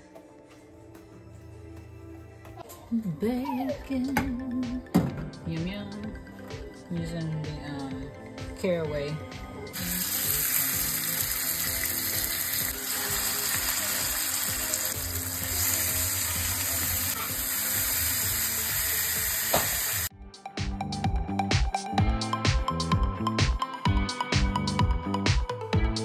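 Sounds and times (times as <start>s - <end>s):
background music: 0.0s - 26.0s
meat sizzling in hot fat: 9.8s - 20.1s.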